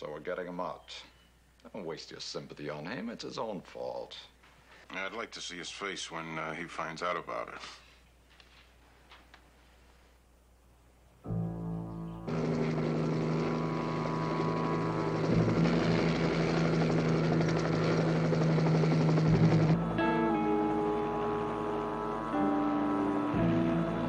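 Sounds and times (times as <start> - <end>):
dramatic music: 11.3 - 24.0
helicopter flying: 12.2 - 24.0.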